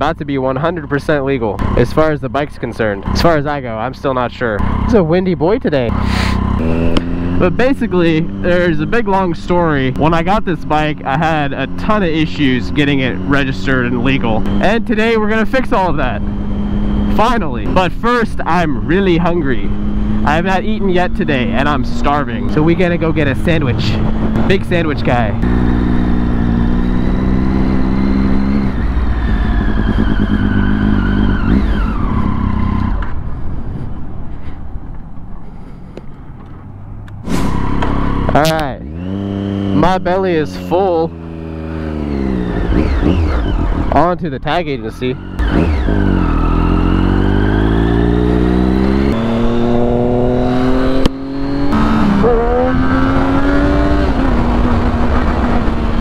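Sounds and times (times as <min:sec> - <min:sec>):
motorcycle engine whining: 0:00.0 - 0:56.0
wind noise: 0:31.2 - 0:38.6, 0:48.2 - 0:56.0.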